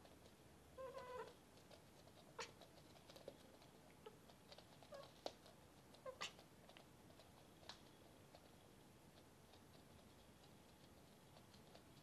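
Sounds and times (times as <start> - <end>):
cat paws clicking on floor: 0.0 - 12.0
cat chirping: 0.8 - 1.3, 6.0 - 6.4.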